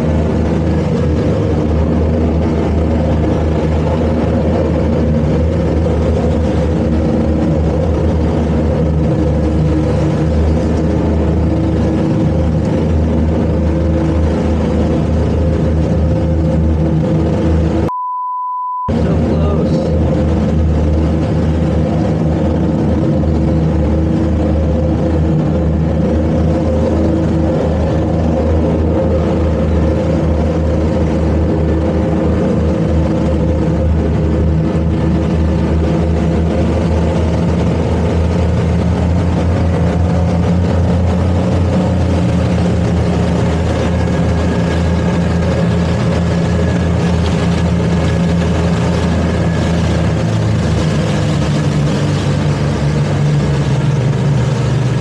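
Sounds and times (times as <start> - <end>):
churning prop wash: 0.0 - 17.9, 18.9 - 55.0
outboard engines running hard: 0.0 - 17.9, 18.9 - 55.0.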